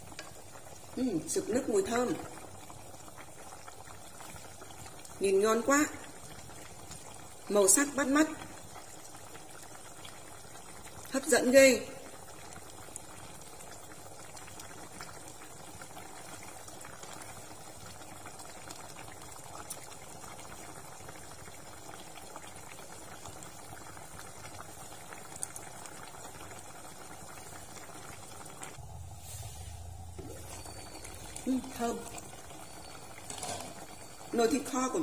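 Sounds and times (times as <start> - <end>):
thick liquid bubbling with pops: 11.9 - 28.8.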